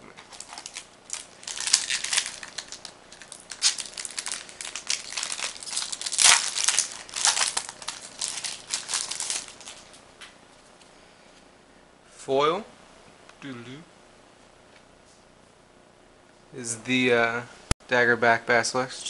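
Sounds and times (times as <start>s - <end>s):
foil wrapper crinkling and tearing: 0.2s - 10.0s.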